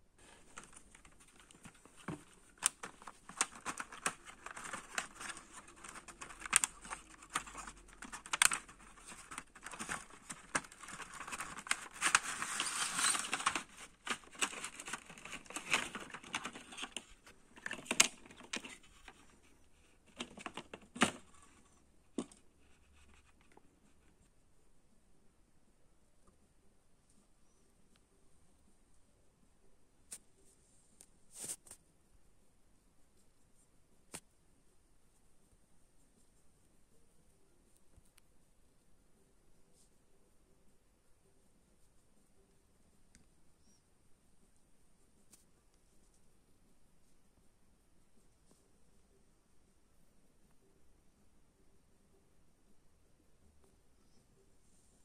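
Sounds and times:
crinkling plastic packaging: 0:00.2 - 0:19.3.

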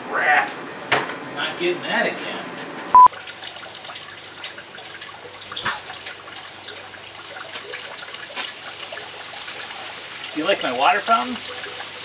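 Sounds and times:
fountain water trickling and splashing: 0:03.1 - 0:12.0.

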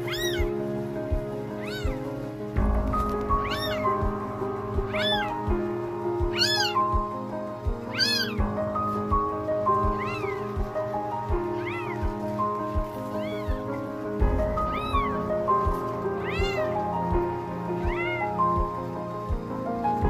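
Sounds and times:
cat meowing: 0:00.0 - 0:00.5, 0:01.6 - 0:02.0, 0:03.3 - 0:04.0, 0:04.9 - 0:05.5, 0:06.3 - 0:07.0, 0:07.9 - 0:08.4, 0:09.7 - 0:10.6, 0:11.5 - 0:12.2, 0:13.0 - 0:13.8, 0:14.6 - 0:15.3, 0:16.2 - 0:16.8, 0:17.7 - 0:18.8
background music with beat: 0:00.0 - 0:20.0.

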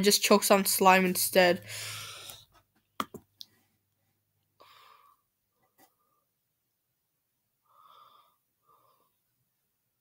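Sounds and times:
faint breaths: 0:01.6 - 0:02.5, 0:04.6 - 0:06.4, 0:07.6 - 0:09.5.

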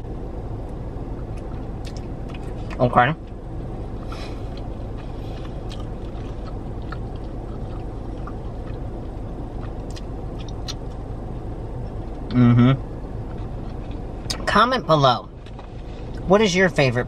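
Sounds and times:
car engine hum inside cabin: 0:00.0 - 0:17.0
clicks from chewing and handling food: 0:09.6 - 0:11.0.

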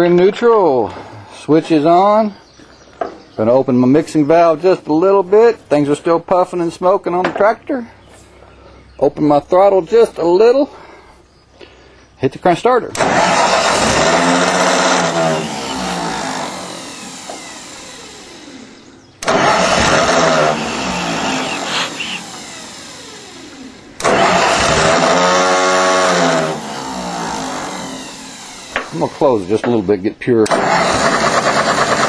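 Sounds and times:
tractor engine firing briefly: 0:12.9 - 0:16.0, 0:19.2 - 0:22.2, 0:24.0 - 0:25.3, 0:30.4 - 0:32.0
tractor engine cranking on starter: 0:12.9 - 0:32.0.

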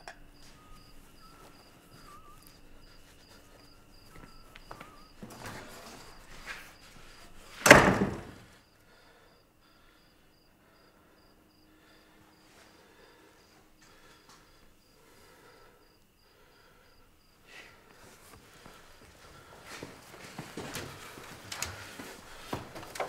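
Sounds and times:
crickets chirping: 0:00.0 - 0:23.0
loud thump: 0:07.6 - 0:08.4.

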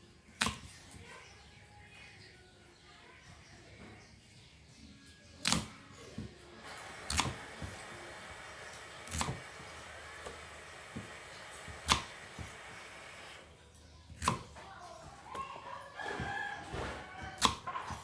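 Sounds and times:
knife chopping on wooden board: 0:07.1 - 0:07.8, 0:08.8 - 0:12.6, 0:14.2 - 0:14.5, 0:16.0 - 0:18.0.

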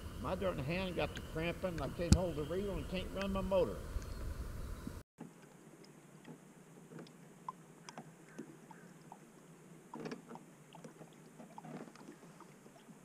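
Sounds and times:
low steady hum: 0:00.0 - 0:13.0
small ticks and knocks: 0:09.9 - 0:12.1.

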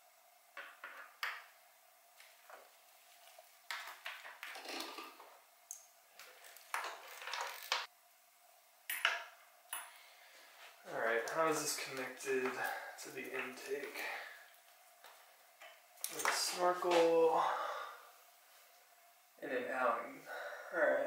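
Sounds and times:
faint steady hum: 0:00.0 - 0:21.0
tools clicking and knocking: 0:08.9 - 0:10.0.

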